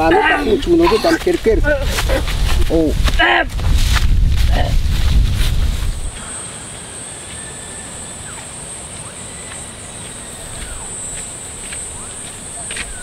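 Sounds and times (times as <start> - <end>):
crickets trilling: 4.4 - 13.0.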